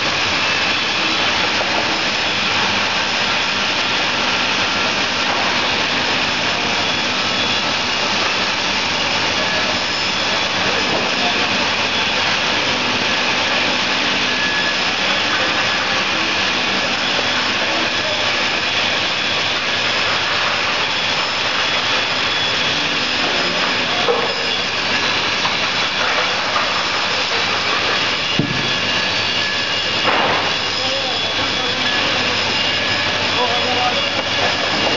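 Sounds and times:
saw machine whining: 0:00.0 - 0:34.9
sharp knock: 0:28.4 - 0:28.7.

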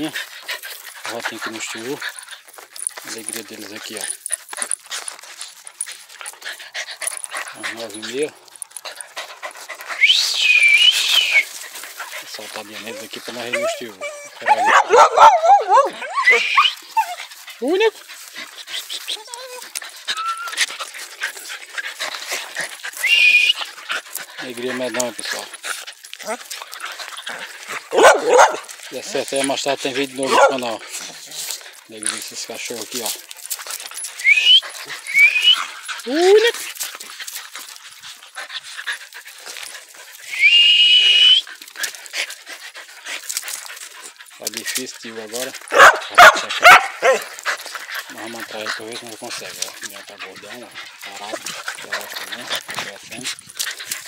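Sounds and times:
paws scuffling on twigs: 0:00.0 - 0:40.7, 0:41.3 - 0:54.0
dogs whining: 0:12.8 - 0:17.3, 0:18.9 - 0:20.7, 0:22.9 - 0:23.7, 0:33.9 - 0:36.5, 0:40.3 - 0:41.5.

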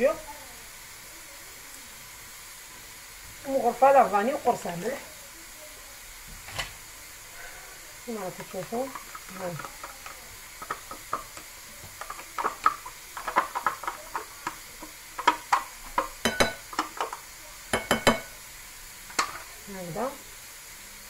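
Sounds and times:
spoon tapping on bowl: 0:08.6 - 0:18.3.

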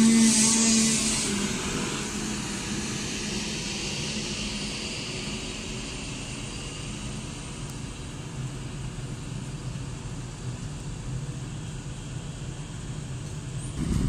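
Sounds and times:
passenger train rolling past: 0:00.0 - 0:09.0, 0:13.5 - 0:14.0.

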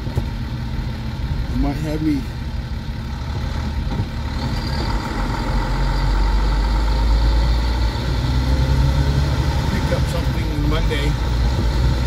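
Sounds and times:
truck diesel engine pulling: 0:00.0 - 0:12.0.

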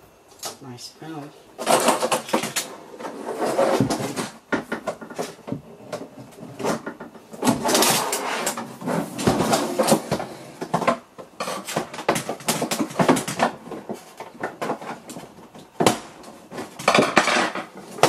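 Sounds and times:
plastic monitor clattering on table: 0:09.2 - 0:18.0.

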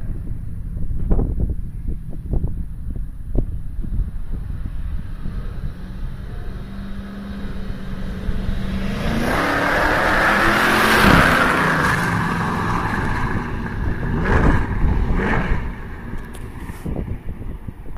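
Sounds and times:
car engine driving past: 0:04.4 - 0:17.2.

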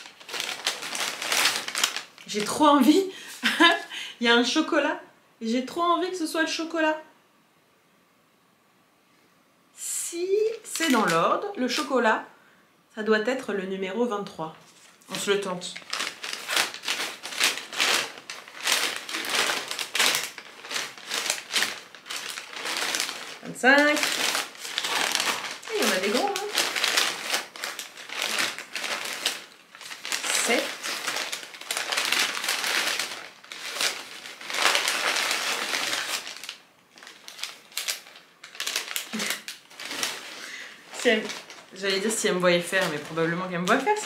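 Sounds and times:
paper packaging rustling: 0:00.0 - 0:03.8, 0:10.5 - 0:11.9, 0:14.6 - 0:44.0
wrappers crinkling: 0:00.0 - 0:03.9, 0:10.3 - 0:12.0, 0:14.6 - 0:44.0.

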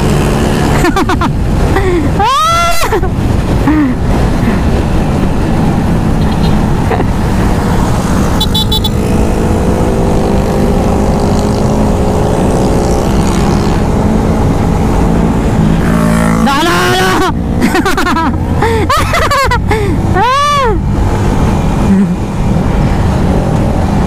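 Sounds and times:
motorcycle engine: 0:00.0 - 0:01.8, 0:03.4 - 0:24.0
wind buffeting microphone: 0:00.0 - 0:08.3.

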